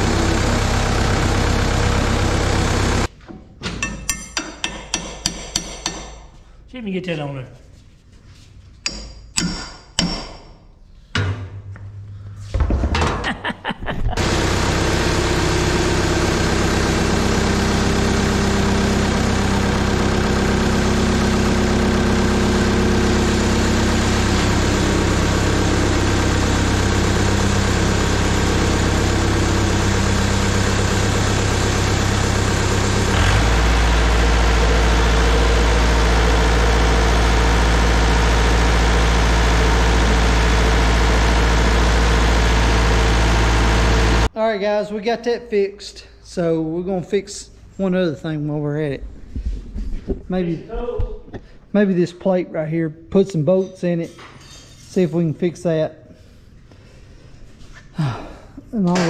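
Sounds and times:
stump grinder engine running: 0.0 - 3.1, 14.2 - 44.3.

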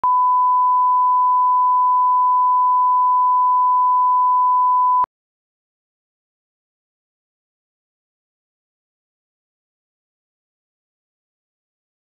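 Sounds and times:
steady line-up tone beep: 0.0 - 5.1.

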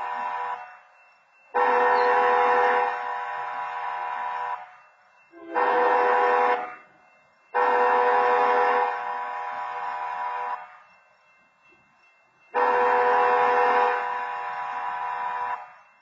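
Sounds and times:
train horn blasts: 0.0 - 0.8, 1.5 - 6.9, 7.6 - 10.8, 12.6 - 15.8.

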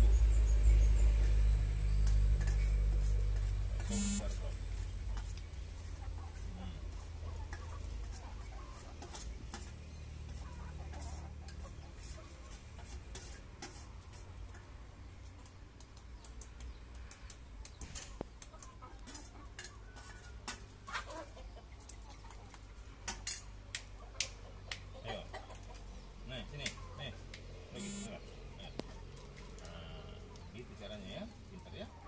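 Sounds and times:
chickens clucking: 3.8 - 32.0
chicken calls: 18.4 - 22.9, 27.8 - 32.0.

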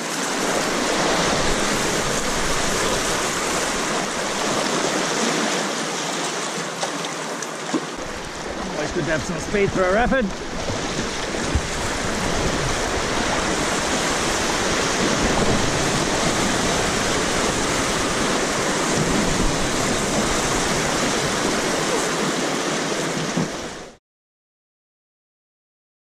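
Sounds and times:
whitewater rapid rushing: 0.0 - 24.0.

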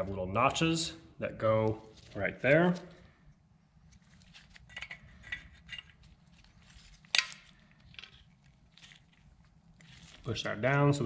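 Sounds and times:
metallic clicks and scrapes: 3.9 - 10.3.

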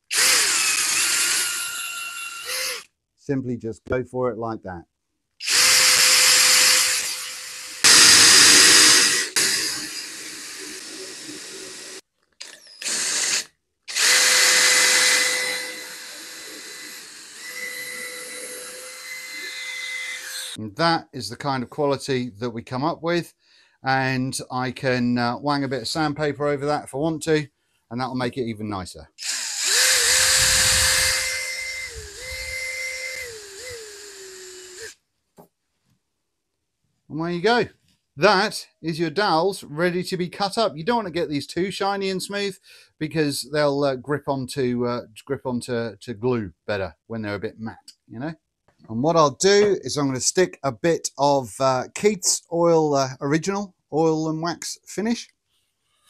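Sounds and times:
drill motor whining: 0.0 - 2.9, 5.4 - 20.6, 29.2 - 35.0.

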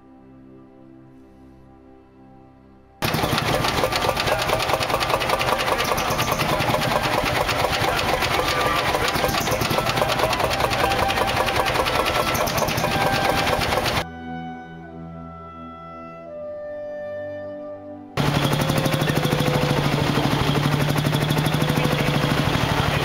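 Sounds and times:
tractor engine clattering: 3.0 - 14.0, 18.2 - 23.0.

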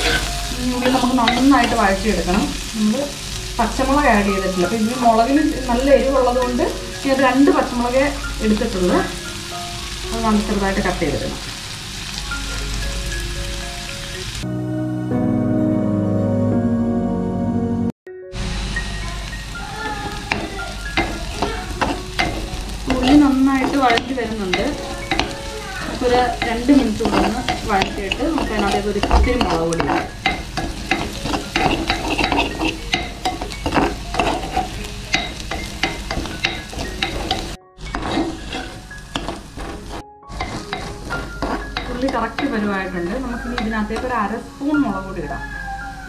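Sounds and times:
spatula scraping pan: 0.0 - 9.2, 19.8 - 44.3
shallots sizzling in oil: 0.0 - 14.5, 18.3 - 45.4.

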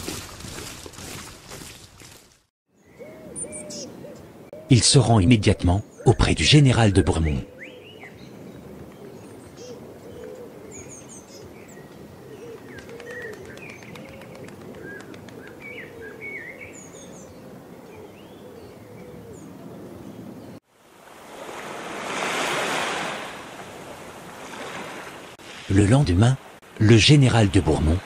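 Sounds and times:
doves cooing: 2.9 - 5.0, 7.4 - 20.2
small birds chirping: 5.7 - 20.6.

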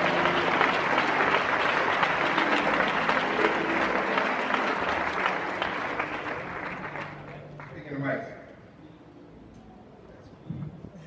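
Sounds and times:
crowd applauding: 0.0 - 8.3.

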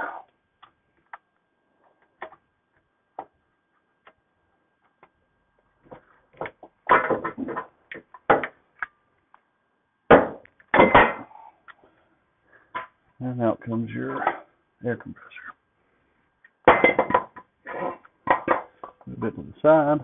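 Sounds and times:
sharp knocks and clatter: 5.9 - 8.6.

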